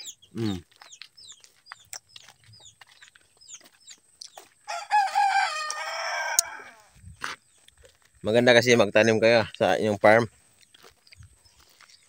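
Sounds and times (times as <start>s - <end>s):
rooster crowing: 4.6s - 7.0s.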